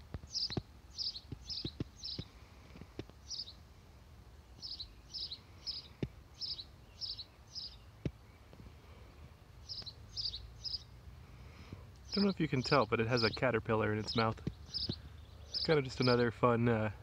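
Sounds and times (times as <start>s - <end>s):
sparrow chirping: 0.0s - 2.6s, 3.2s - 3.6s, 4.4s - 8.1s, 9.6s - 11.0s, 11.6s - 16.9s.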